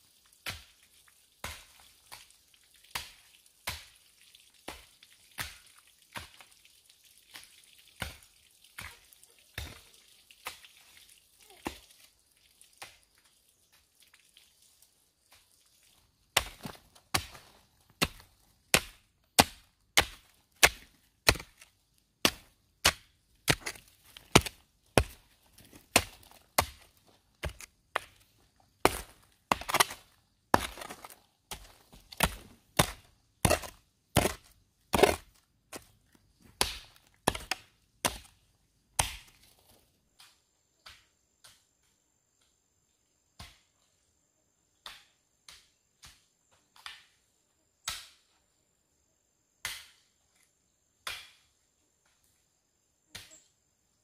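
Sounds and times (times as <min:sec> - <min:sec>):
hand tool chopping: 0:16.4 - 0:28.2, 0:28.8 - 0:35.8, 0:36.5 - 0:38.3.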